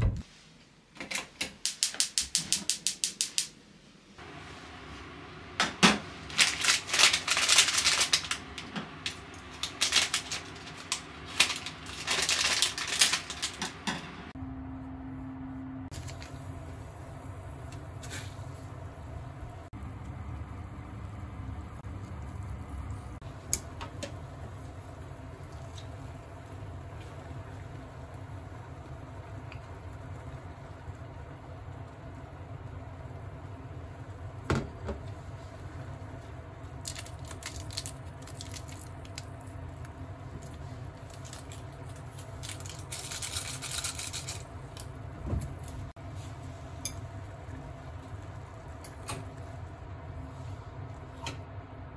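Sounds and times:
low rumble of gas burner: 0:02.2 - 0:51.9
plastic packet crinkling: 0:06.3 - 0:13.8, 0:36.8 - 0:39.4, 0:41.0 - 0:44.8.

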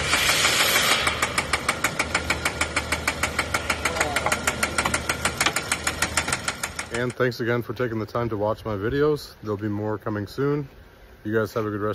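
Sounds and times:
car engine running: 0:00.0 - 0:07.0
rapid metallic engine knock: 0:00.0 - 0:07.1.

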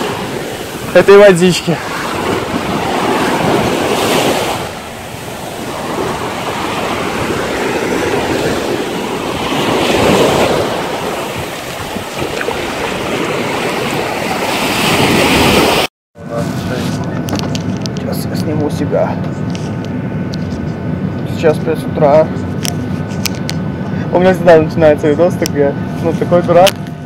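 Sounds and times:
waves washing on sandy shore: 0:00.0 - 0:18.8.

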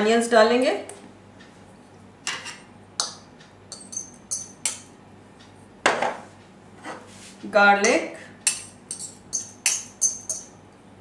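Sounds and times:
spoon clinking against bowl: 0:02.3 - 0:04.9, 0:08.5 - 0:10.6.

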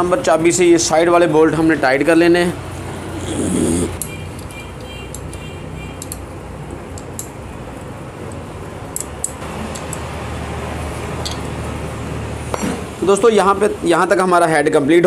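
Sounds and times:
spanner clicking on bolts: 0:04.0 - 0:06.3, 0:06.9 - 0:07.4, 0:08.3 - 0:10.1.

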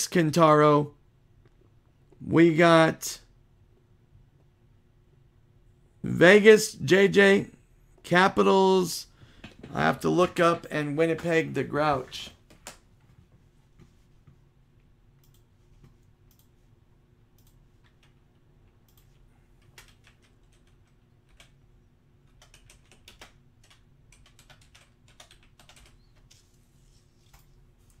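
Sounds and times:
low steady hum: 0:00.0 - 0:28.0
typing on computer keyboard: 0:18.9 - 0:21.6, 0:22.3 - 0:26.4.

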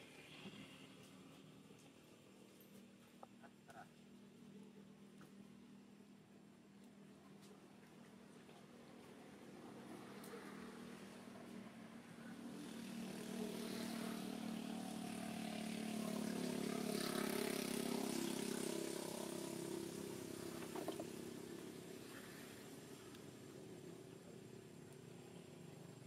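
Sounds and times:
vehicle engine passing by: 0:09.5 - 0:25.7.

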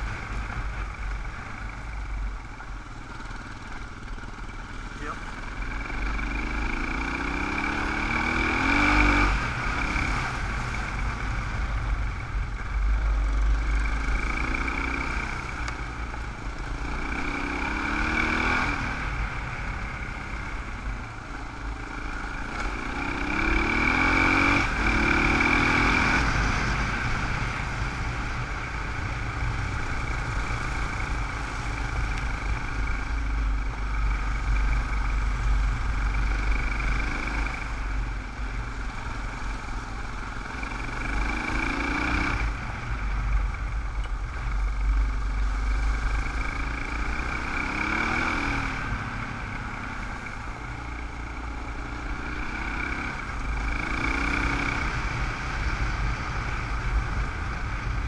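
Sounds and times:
motorcycle engine accelerating: 0:00.0 - 0:58.0.

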